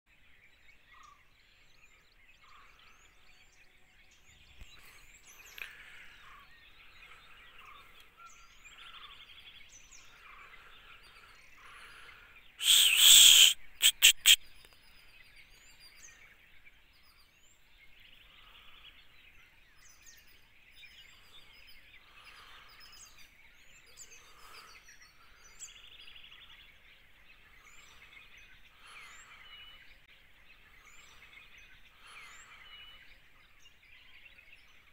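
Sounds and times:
birds chirping and calling: 0:00.1 - 0:34.9.

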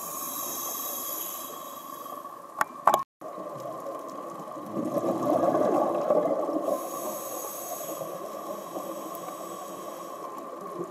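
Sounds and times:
underwater hiss: 0:00.0 - 0:02.5, 0:05.2 - 0:10.9
exhaled bubbles rushing: 0:03.2 - 0:06.9.

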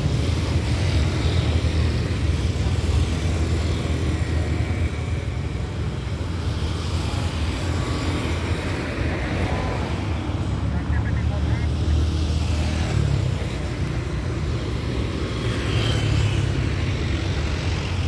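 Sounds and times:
passing road traffic: 0:00.0 - 0:18.0.

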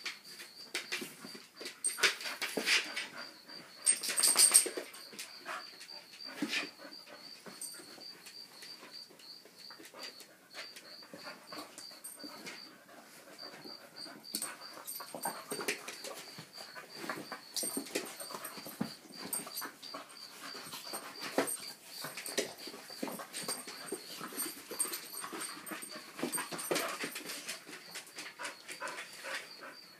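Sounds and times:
dogs play noises: 0:00.1 - 0:29.9.

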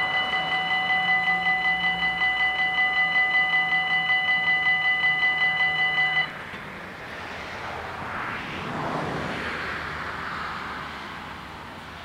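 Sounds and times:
level crossing bells ringing: 0:00.0 - 0:06.4
soft rushing noise: 0:06.5 - 0:12.0.

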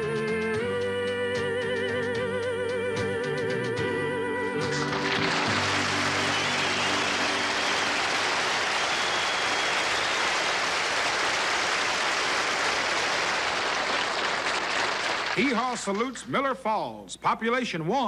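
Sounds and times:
audience applauding: 0:04.7 - 0:16.1.

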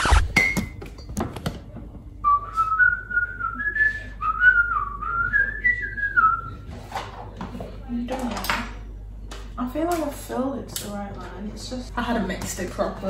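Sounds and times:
person whistling a tune: 0:02.2 - 0:06.6.

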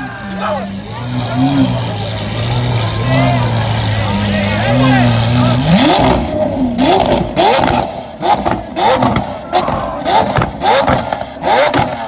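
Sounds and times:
car engine revving: 0:00.0 - 0:12.0
exhaust popping and crackling: 0:05.0 - 0:12.0.

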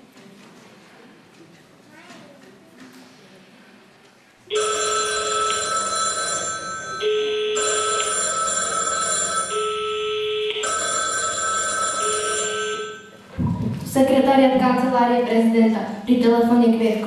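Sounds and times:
telephone ringing: 0:04.5 - 0:13.2.

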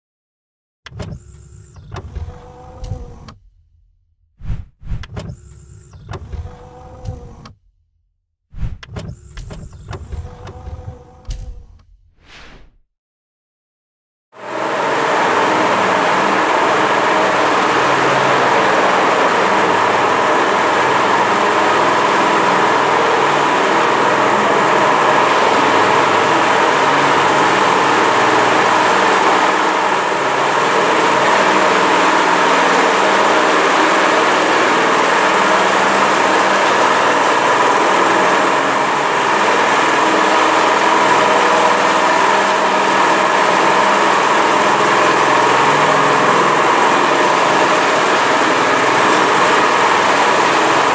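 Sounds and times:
power trowel engine running: 0:14.4 - 0:50.9.

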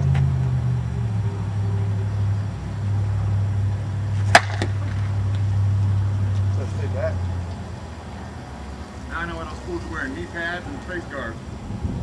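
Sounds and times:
bat cracking against ball: 0:04.2 - 0:05.5.

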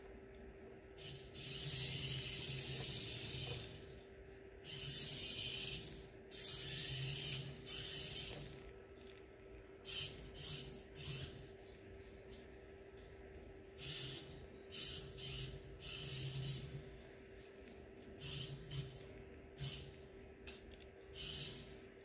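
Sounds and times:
toy car motor whirring: 0:01.0 - 0:03.9, 0:04.6 - 0:08.6, 0:09.9 - 0:11.5, 0:13.8 - 0:16.8, 0:18.2 - 0:19.0, 0:19.6 - 0:20.0, 0:21.2 - 0:21.8.

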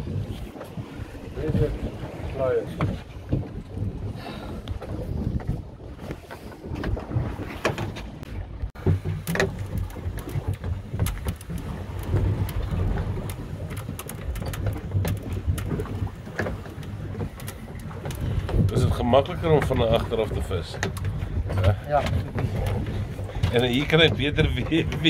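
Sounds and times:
boat engine low rumble: 0:00.0 - 0:25.0
wind buffeting microphone: 0:00.0 - 0:25.0
clicks and knocks from gear: 0:08.8 - 0:18.8.

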